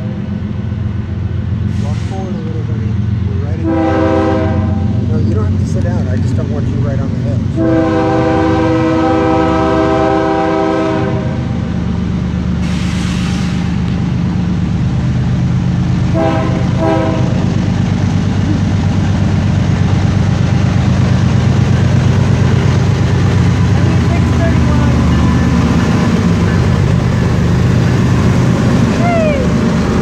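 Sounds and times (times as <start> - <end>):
locomotive engine rumble: 0.0 - 30.0
train horn blasts: 3.5 - 5.0, 7.6 - 11.5, 16.1 - 17.5.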